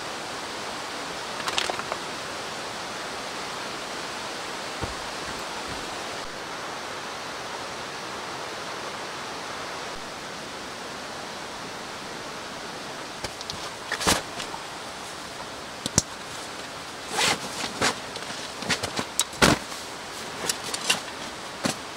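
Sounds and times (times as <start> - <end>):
mountain stream rushing: 0.0 - 21.9
short rustle: 13.2 - 21.9.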